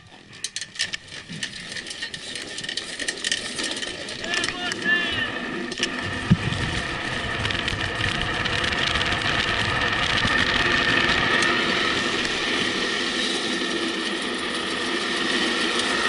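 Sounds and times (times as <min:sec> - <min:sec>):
steady high whine: 0:00.0 - 0:16.0
tyres rolling on asphalt: 0:00.0 - 0:16.0
wind rushing over camera: 0:04.1 - 0:16.0.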